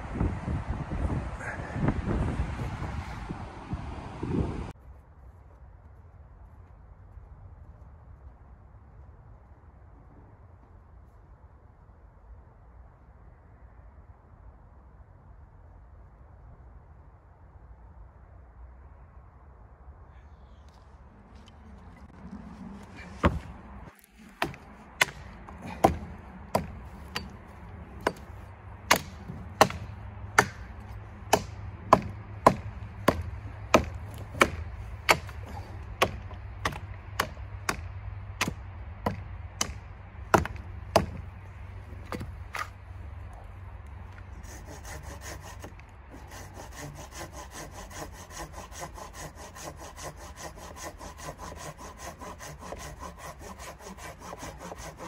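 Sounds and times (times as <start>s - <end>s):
hand saw cutting wood: 23.0s - 27.4s, 28.0s - 37.8s, 44.3s - 55.0s
hatchet chopping wood: 23.2s - 41.3s, 41.9s - 42.7s, 44.5s - 55.0s.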